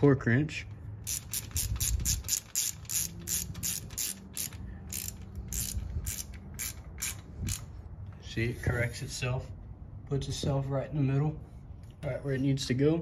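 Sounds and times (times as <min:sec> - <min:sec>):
hand ratchet clicking: 0:01.0 - 0:07.7.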